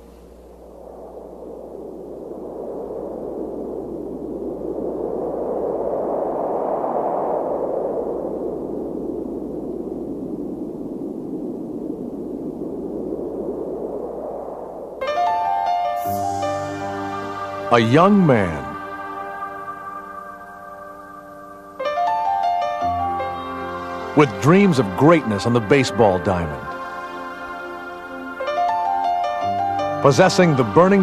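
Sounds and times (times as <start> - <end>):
rushing whoosh: 0.0 - 24.6.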